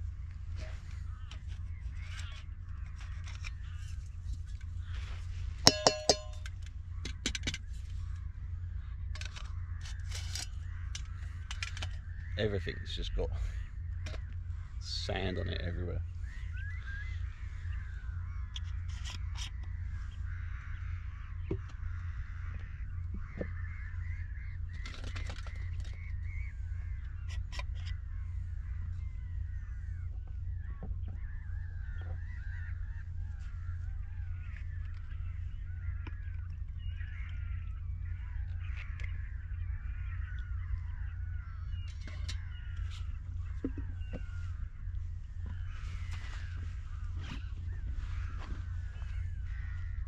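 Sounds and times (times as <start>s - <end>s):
flock of birds chirping: 0.0s - 50.0s
low rumble: 7.8s - 18.8s, 27.8s - 50.0s.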